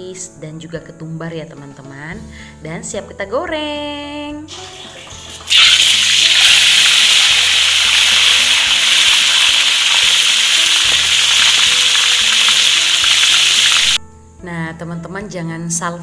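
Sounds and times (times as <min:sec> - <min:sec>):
fish sizzling in hot oil: 0:04.5 - 0:14.0.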